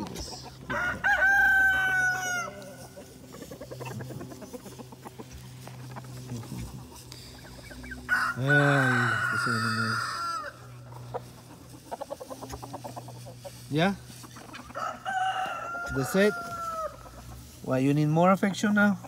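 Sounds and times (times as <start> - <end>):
poultry drawn-out call: 0.0 - 17.7
poultry clucking: 0.0 - 19.0.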